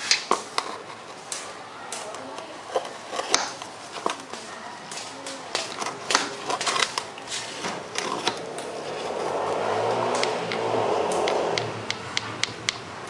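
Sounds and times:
rushing noise: 7.8s - 13.0s.

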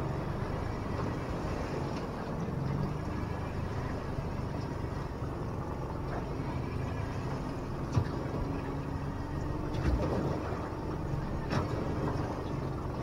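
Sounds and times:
outboard motor running: 0.0s - 13.0s
water noise: 0.0s - 13.0s.

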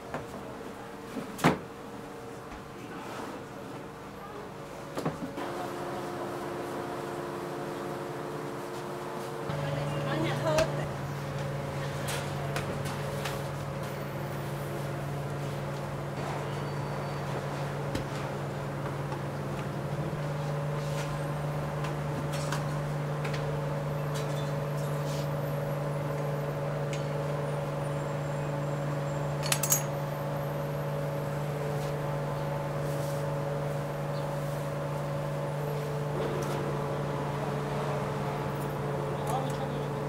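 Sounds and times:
steady mechanical hum: 0.0s - 40.0s
metal hook clinking: 29.4s - 30.0s.

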